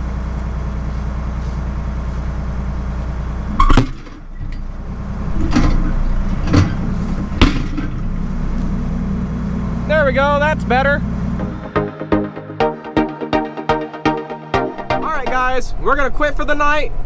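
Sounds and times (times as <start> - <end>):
tractor diesel engine idling: 0.0 - 12.2
metal clanks and knocks: 3.5 - 8.2.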